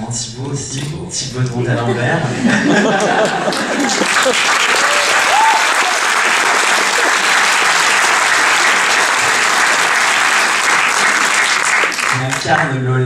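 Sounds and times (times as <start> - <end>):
audience applauding: 2.9 - 12.8.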